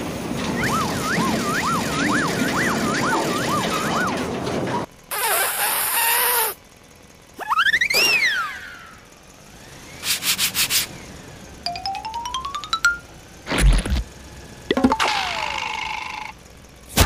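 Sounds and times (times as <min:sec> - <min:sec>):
cartoon whistle rising and falling: 0:07.4 - 0:09.0.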